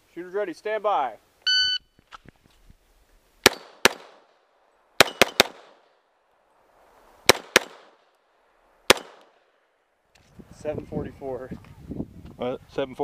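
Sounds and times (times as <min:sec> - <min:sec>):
pistol shots with echo: 0:03.4 - 0:04.3, 0:05.0 - 0:05.9, 0:07.3 - 0:08.0, 0:08.9 - 0:09.3.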